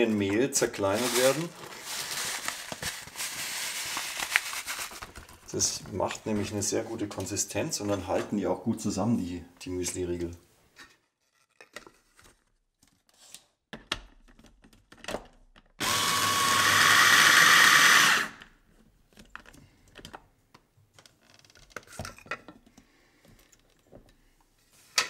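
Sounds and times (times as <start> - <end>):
electric food chopper grinding: 15.8 - 18.4.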